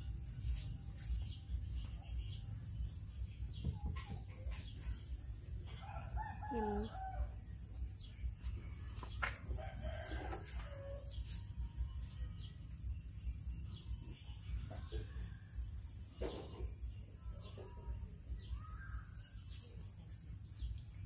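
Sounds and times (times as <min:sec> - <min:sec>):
rooster crowing: 0:05.8 - 0:07.4.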